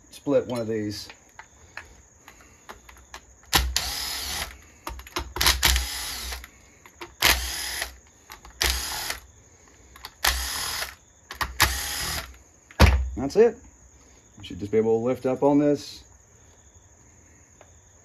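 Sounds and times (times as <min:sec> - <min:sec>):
cordless power driver whirring: 0:03.5 - 0:04.6, 0:05.4 - 0:06.5, 0:07.2 - 0:08.0, 0:08.6 - 0:09.2, 0:10.0 - 0:11.0, 0:11.6 - 0:12.4.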